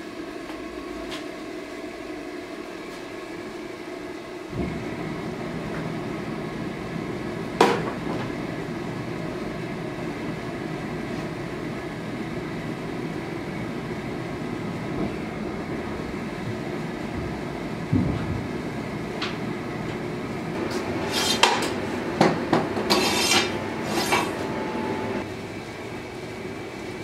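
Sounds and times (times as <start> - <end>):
gas forge burners rushing: 4.4 - 25.4.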